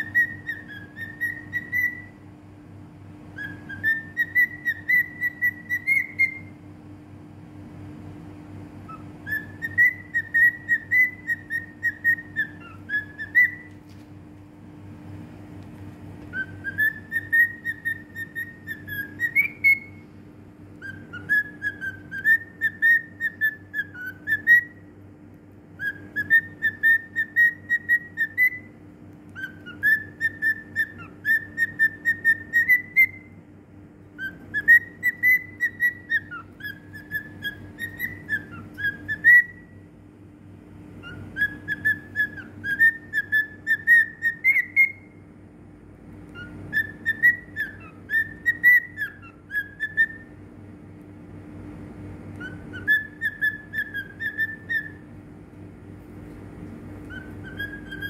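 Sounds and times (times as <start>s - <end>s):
cockatiel whistling: 0.0s - 2.2s, 3.3s - 6.6s, 8.8s - 13.8s, 16.2s - 20.1s, 20.7s - 25.0s, 25.7s - 33.4s, 34.1s - 39.9s, 41.0s - 45.2s, 46.3s - 50.5s, 52.3s - 55.2s, 56.9s - 58.0s.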